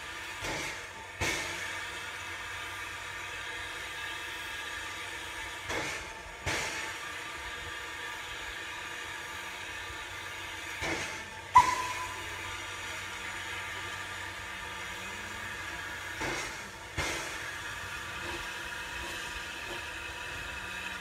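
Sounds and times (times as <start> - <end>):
locomotive exhaust puffs: 0.0 - 21.0
steam hissing: 0.0 - 21.0
sharp metallic clank: 11.6 - 12.4.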